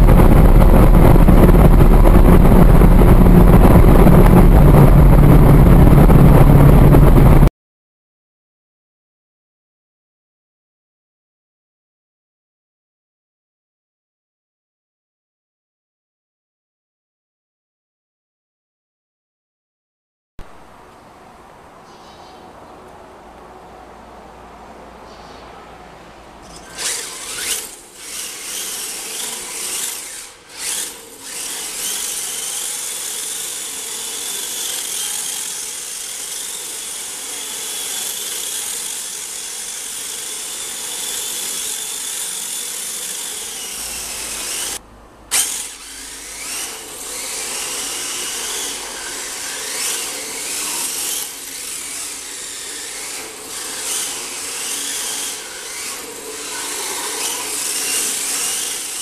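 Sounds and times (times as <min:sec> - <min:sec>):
electric motor whining: 0:00.0 - 0:07.5, 0:26.5 - 0:59.0.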